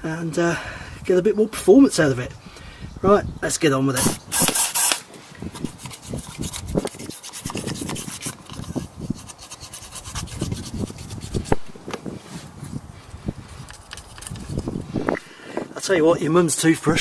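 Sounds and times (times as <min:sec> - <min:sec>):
toothbrush scrubbing metal: 0:05.6 - 0:11.6.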